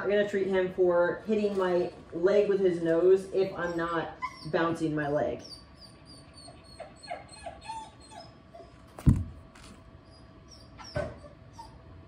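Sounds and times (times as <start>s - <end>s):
dog whimpering: 3.4s - 8.9s, 10.0s - 12.0s
dull thumps: 9.0s - 9.8s.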